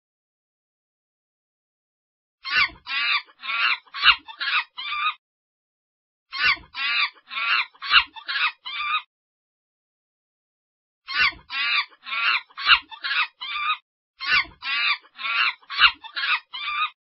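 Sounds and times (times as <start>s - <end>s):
monkey shrill calls: 2.4s - 5.2s, 6.3s - 9.1s, 11.1s - 17.0s.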